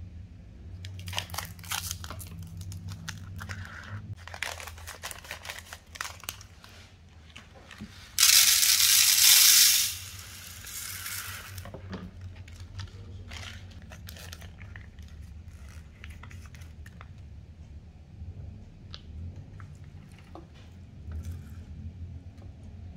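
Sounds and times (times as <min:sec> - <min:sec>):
plastic packaging crinkling: 0:00.8 - 0:17.0
rice pouring into foil tray: 0:07.9 - 0:11.7.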